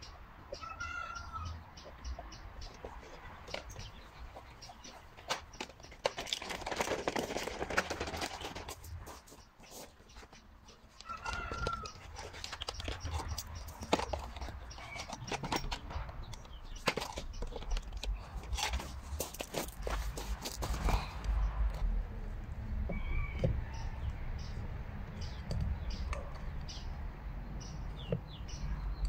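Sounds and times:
cart rattling and clunking: 0:05.2 - 0:08.9
footsteps on gravel: 0:18.7 - 0:21.1.

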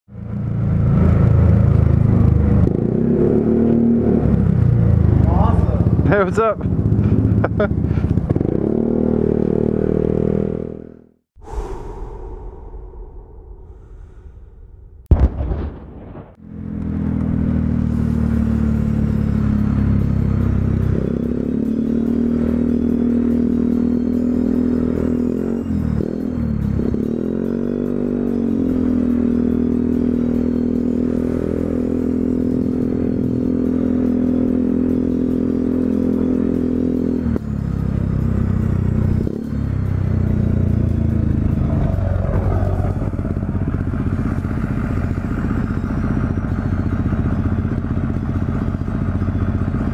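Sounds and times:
scooter engine running: 0:04.2 - 0:09.8, 0:42.8 - 0:49.9.

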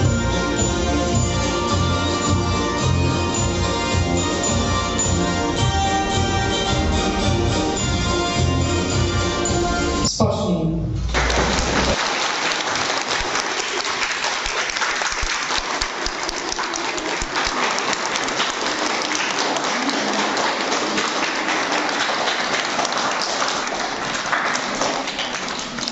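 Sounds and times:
audience applauding: 0:11.1 - 0:25.9.

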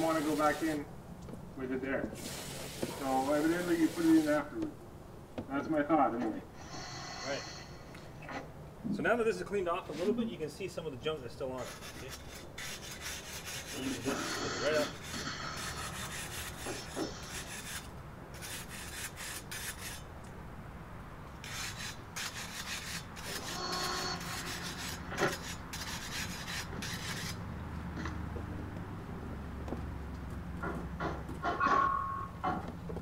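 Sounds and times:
scrubbing a grill: 0:11.5 - 0:20.0, 0:21.4 - 0:27.4.

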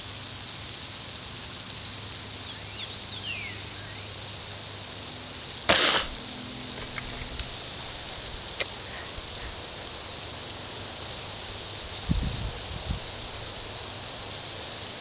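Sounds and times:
outdoor hiss: 0:00.0 - 0:15.0
breath burst on microphone: 0:05.7 - 0:06.2.

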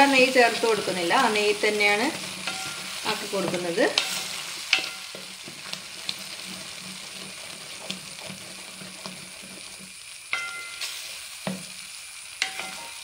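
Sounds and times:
fruit pulp sizzling in a pan: 0:00.0 - 0:13.0
utensil scraping a metal pan: 0:02.0 - 0:05.4.

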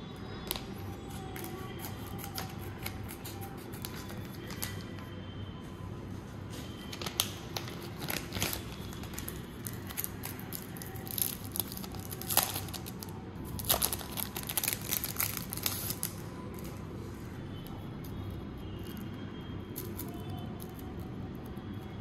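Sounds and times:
wrapper crinkling and tearing: 0:01.4 - 0:04.8, 0:06.8 - 0:16.8.

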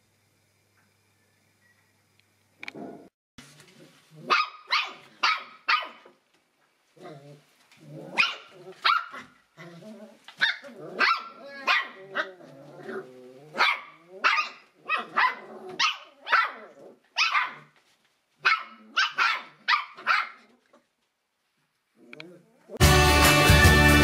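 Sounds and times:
puppies barking: 0:04.2 - 0:06.1, 0:08.2 - 0:09.4, 0:10.4 - 0:12.3, 0:13.5 - 0:17.7, 0:18.4 - 0:20.4.

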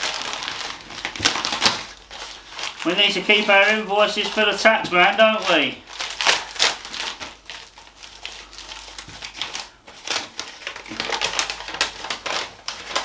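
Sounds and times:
paper rustling and crinkling: 0:00.0 - 0:13.0.

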